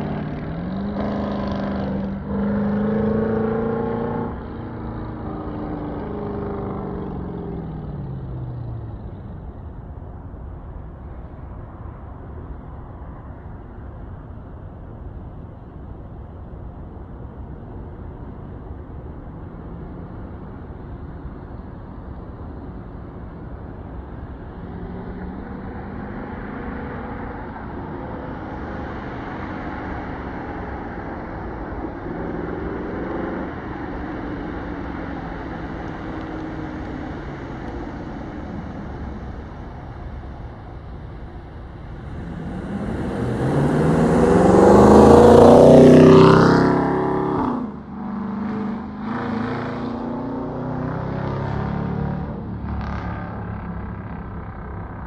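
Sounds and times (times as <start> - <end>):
car exhaust accelerating past: 24.7 - 55.0.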